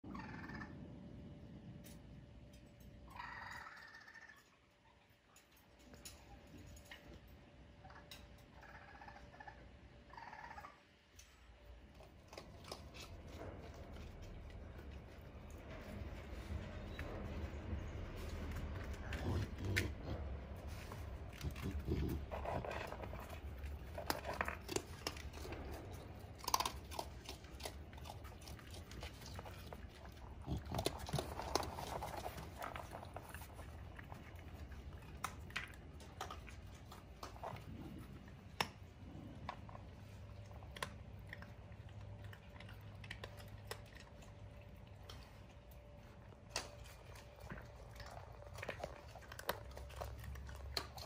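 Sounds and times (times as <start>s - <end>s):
raccoons soft calls: 0.0s - 1.0s, 3.1s - 5.0s, 7.8s - 11.0s
raccoons chewing and scuffling: 0.0s - 51.0s
small clicks and scratches: 11.1s - 51.0s.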